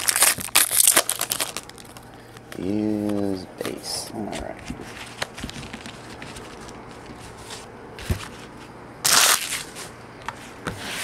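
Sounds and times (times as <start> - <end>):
foil wrapper crinkling: 0.0 - 2.2, 9.0 - 9.8
card packs rustling: 0.0 - 10.0.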